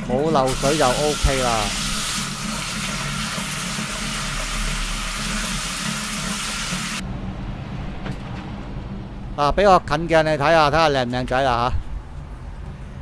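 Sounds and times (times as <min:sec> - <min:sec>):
water running from tap: 0:00.4 - 0:07.0.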